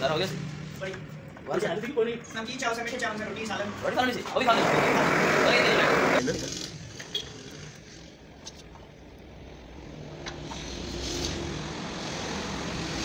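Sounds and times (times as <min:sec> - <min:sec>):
blowtorch flame hissing: 0:04.4 - 0:06.2.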